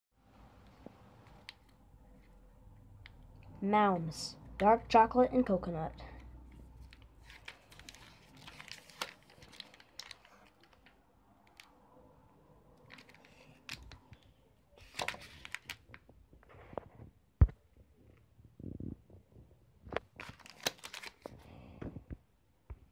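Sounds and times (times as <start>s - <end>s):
plastic wrapper crinkling: 6.5s - 11.9s, 12.8s - 16.1s, 20.0s - 21.4s.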